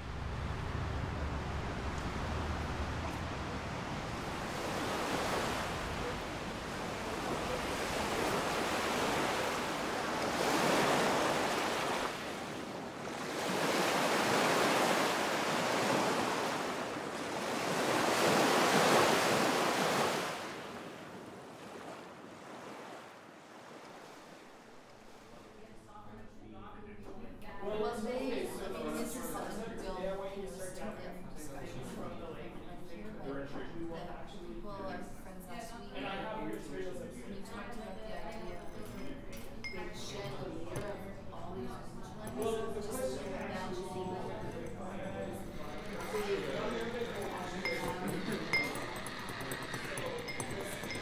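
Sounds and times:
waves washing in: 0.0 - 25.6.

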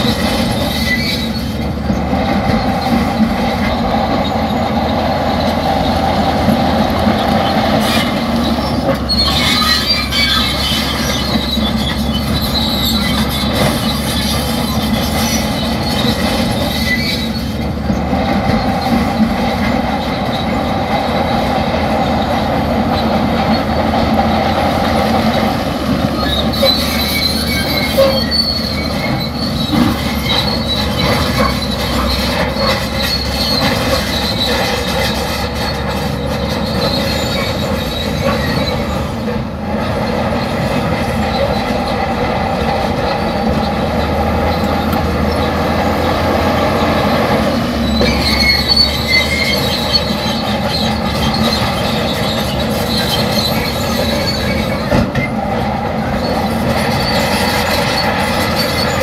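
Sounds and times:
bulldozer engine: 0.0 - 59.0
steel tracks squealing and clanking: 0.0 - 59.0.

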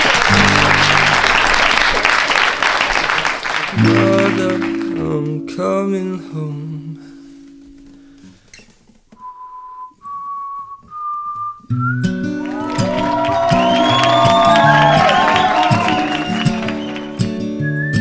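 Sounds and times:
clapping and cheering: 0.0 - 5.4, 12.1 - 17.6
acoustic guitar music: 0.3 - 1.6, 3.7 - 18.0.

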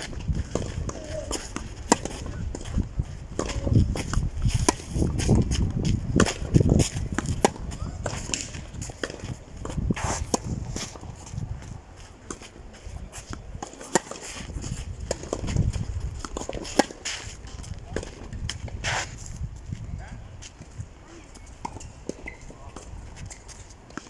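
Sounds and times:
racket striking tennis ball: 0.4 - 11.3, 13.1 - 15.6, 16.2 - 17.4.

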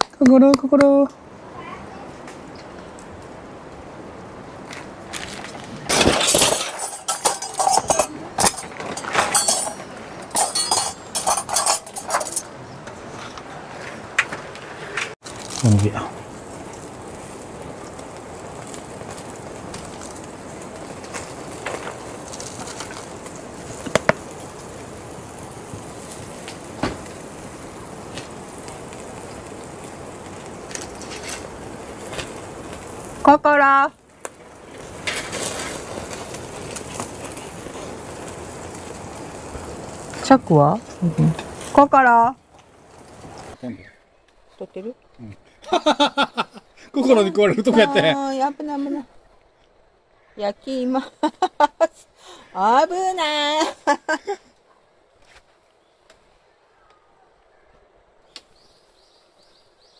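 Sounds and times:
skewers sizzling on charcoal grill: 0.0 - 49.7
crinkling and clinking handling noise: 4.7 - 16.0, 21.0 - 24.7.

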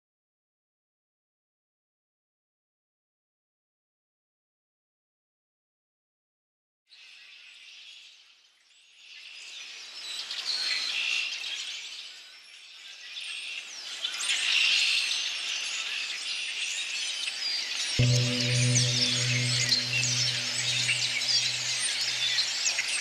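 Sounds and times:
low droning tone: 18.0 - 22.6.

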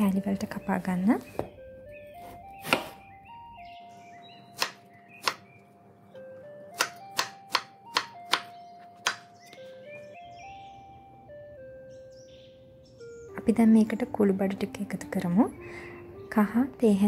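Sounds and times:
background music: 0.0 - 17.0
knife chopping on wooden board: 2.2 - 3.0, 4.6 - 5.4, 6.8 - 9.6.

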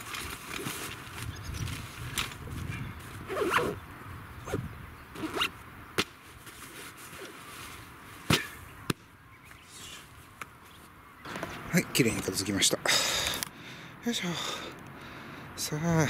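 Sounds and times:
zipper pulled on bag: 3.3 - 3.8, 5.2 - 5.5.

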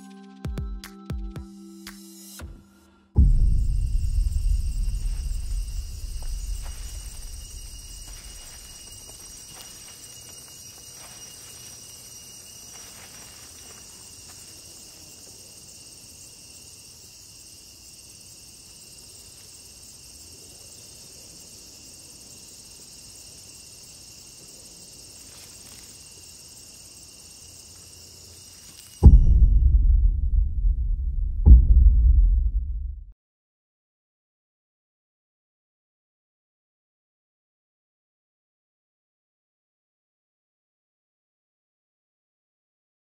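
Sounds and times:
loud deep boom: 3.2 - 9.0, 29.0 - 33.2
crickets and insects chirping: 3.2 - 29.5
soft footfalls on sand: 4.2 - 14.9.

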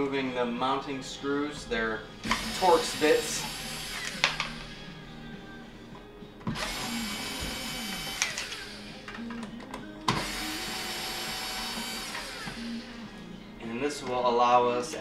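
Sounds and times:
drill click: 2.2 - 4.8, 6.5 - 12.8
drill motor whine: 2.2 - 5.0, 6.5 - 9.2, 10.1 - 13.2.

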